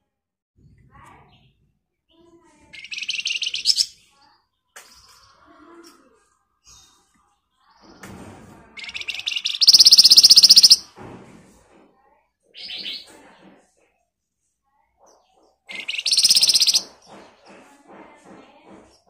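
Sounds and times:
bird chattering notes: 2.7 - 4.0, 8.8 - 10.8, 15.7 - 16.9
bird buzzing trills: 8.9 - 10.8, 15.8 - 16.8.

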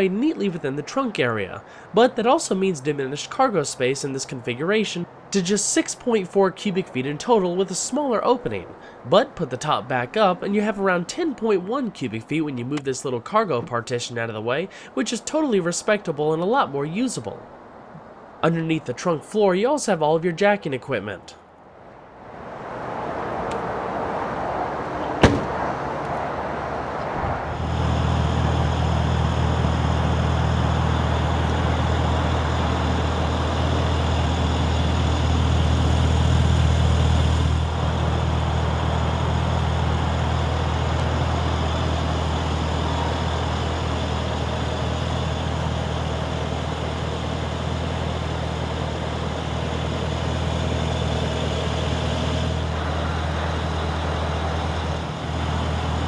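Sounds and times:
car engine idling: 25.0 - 26.1, 27.5 - 56.0
car boot lid slamming: 25.1 - 25.6.

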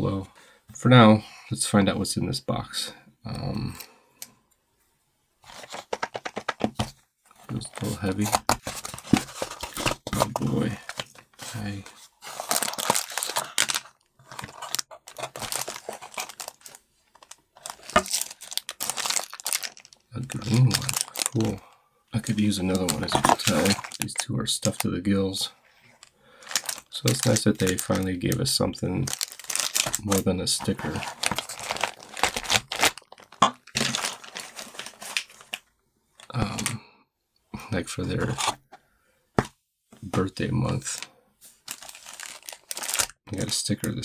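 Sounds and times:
plastic wrapping crinkling: 7.5 - 21.6, 22.2 - 24.9, 25.9 - 35.6, 40.7 - 43.5.

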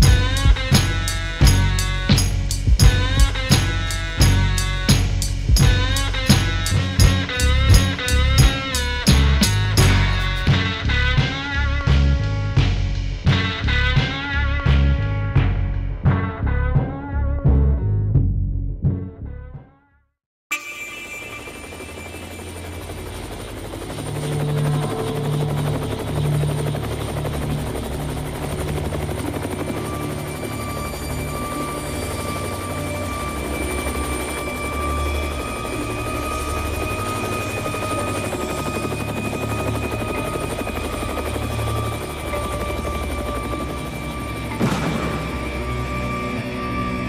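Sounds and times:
helicopter rotor beating: 0.0 - 14.5, 20.6 - 47.0.

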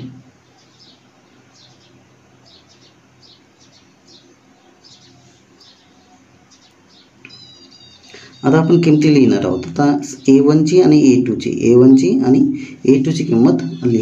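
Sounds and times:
faint bird chirps: 0.0 - 11.1, 12.1 - 14.0
low steady hum: 0.0 - 14.0
tonal bird call: 7.0 - 11.0.

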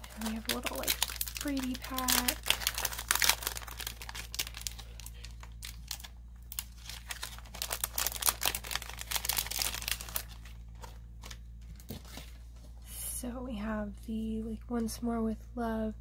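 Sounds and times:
plastic packet crinkling: 0.0 - 12.2.

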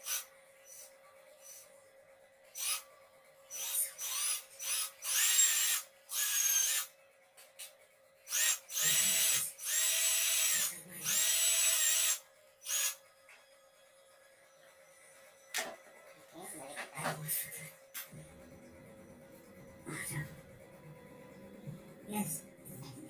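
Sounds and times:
drill motor whining: 2.6 - 2.8, 3.5 - 6.9, 8.3 - 13.0.

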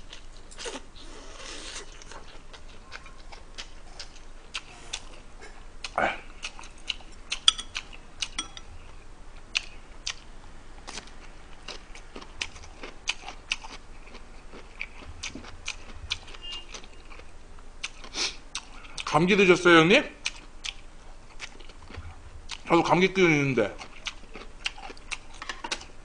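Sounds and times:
person chewing: 0.0 - 10.2, 10.9 - 19.1, 20.2 - 22.7, 23.8 - 26.0
chopsticks clicking against dishes: 6.9 - 8.7.

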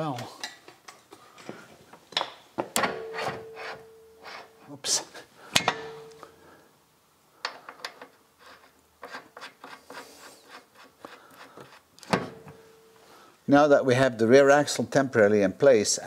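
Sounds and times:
sharp metal clack: 5.6 - 6.3.

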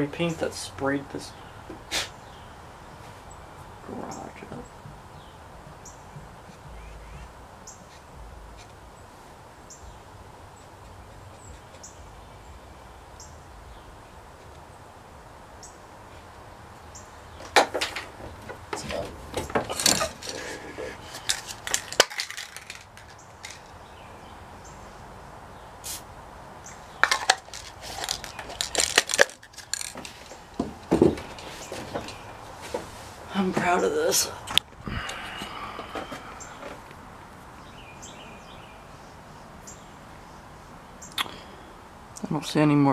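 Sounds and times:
hard objects clinking and clattering: 17.5 - 23.8, 26.9 - 32.2.

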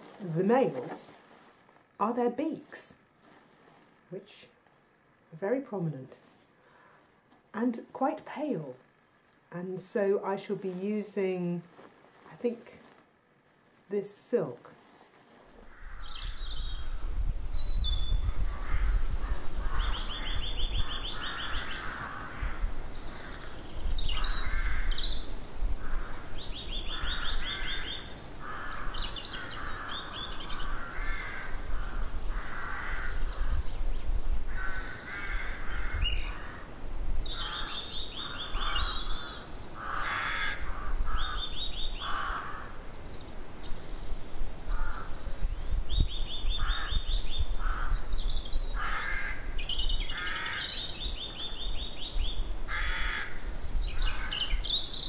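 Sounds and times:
small birds chirping: 15.2 - 55.0
rooks cawing: 15.6 - 16.3, 18.4 - 33.5, 34.5 - 36.7, 37.3 - 42.8, 44.7 - 45.2, 46.6 - 48.1, 48.8 - 49.5, 50.1 - 51.0, 52.7 - 54.7
steady low rumble: 15.6 - 39.9.

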